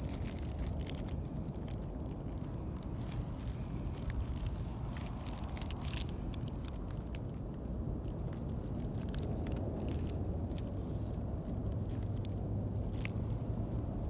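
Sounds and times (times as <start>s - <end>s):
sharp clicks and crackles: 0.0s - 10.7s, 11.4s - 13.9s
wind rumbling on microphone: 0.0s - 14.0s.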